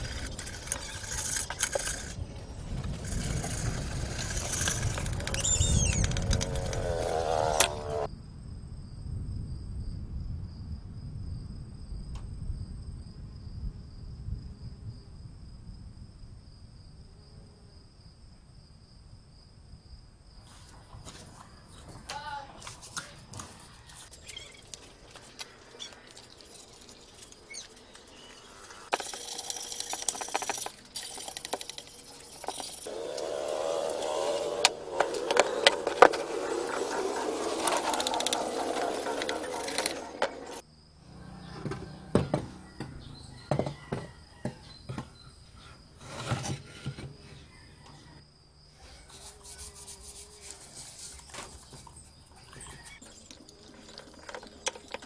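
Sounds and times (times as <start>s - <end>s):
scraper scraping paint off metal: 22.6s - 40.6s, 46.0s - 47.4s, 48.8s - 52.9s.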